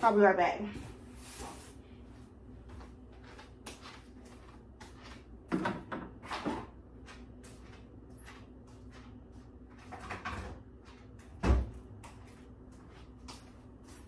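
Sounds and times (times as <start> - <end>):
low room hum: 0.0 - 14.0.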